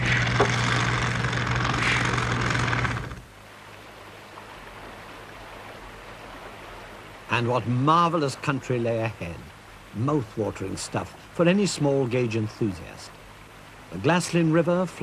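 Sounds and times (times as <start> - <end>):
motorized track tool rattling: 0.0 - 3.2
river water flowing: 0.0 - 15.0.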